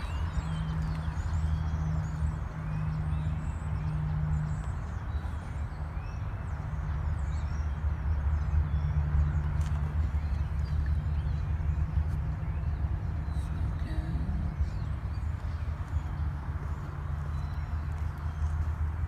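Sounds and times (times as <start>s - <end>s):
low hum and rumble: 0.0s - 19.0s.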